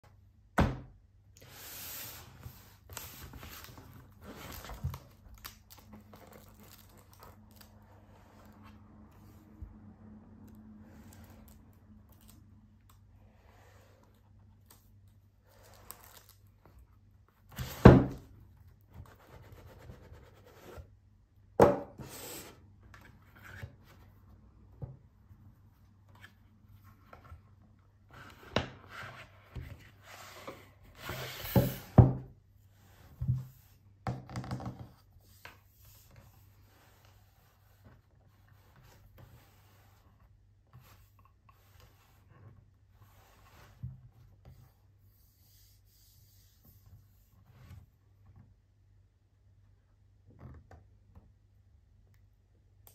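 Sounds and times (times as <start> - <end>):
cardboard rubbing and sliding: 28.1 - 32.1.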